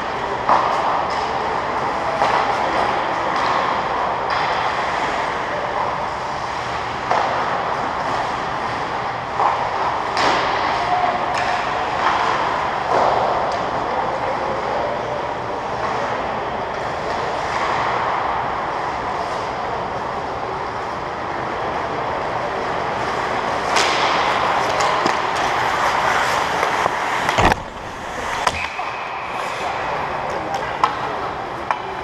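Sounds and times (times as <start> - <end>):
skate blades scraping ice: 23.0 - 30.2
loud knock: 27.3 - 28.6.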